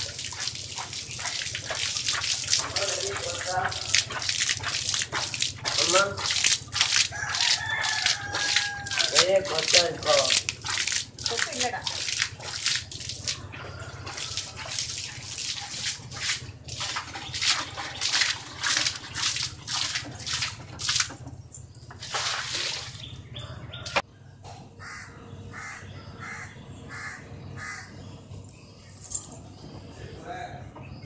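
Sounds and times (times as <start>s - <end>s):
water splashing onto paving: 0.0s - 23.3s.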